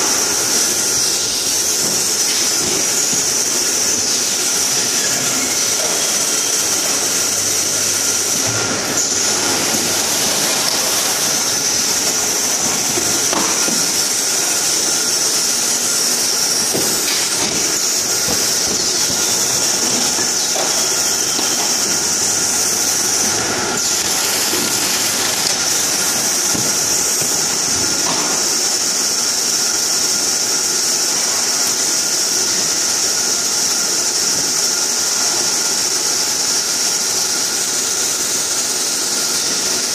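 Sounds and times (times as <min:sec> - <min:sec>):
packing machines running: 0:00.0 - 0:39.9.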